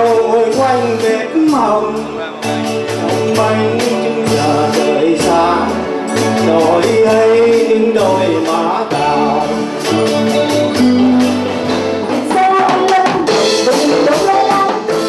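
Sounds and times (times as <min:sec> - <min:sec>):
live band playing: 0:00.0 - 0:15.0
woman singing into a microphone: 0:10.8 - 0:15.0.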